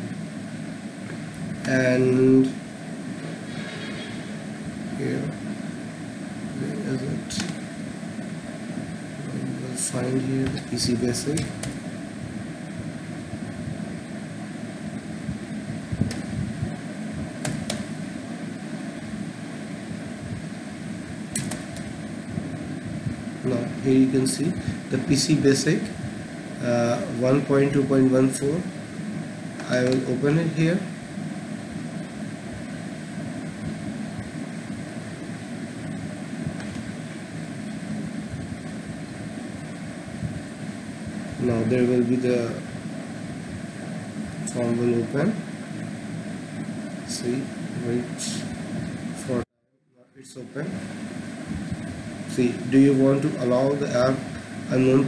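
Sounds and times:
background hum: 0.0 - 55.0
low background noise: 0.0 - 55.0
keyboard key clicks: 21.4 - 21.8.

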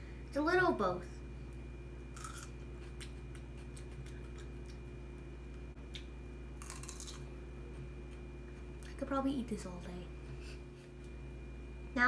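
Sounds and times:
chewing crisp melon: 2.1 - 4.9, 5.8 - 9.0.

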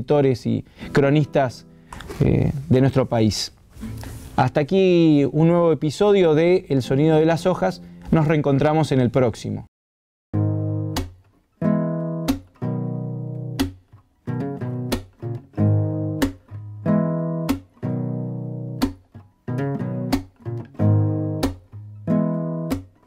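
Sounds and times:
acoustic guitar chords: 0.7 - 2.2, 10.4 - 23.0.

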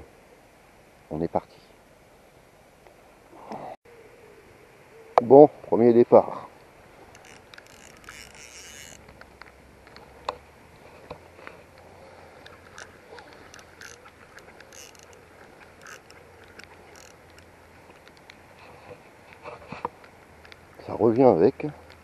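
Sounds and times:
fishing rod rustling: 6.5 - 20.8
fishing reel clicking: 7.0 - 10.0, 12.4 - 18.4.

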